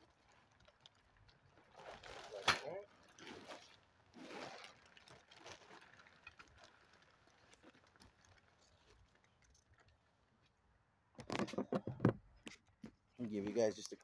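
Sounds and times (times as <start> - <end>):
tent material rustling: 1.5 - 9.1.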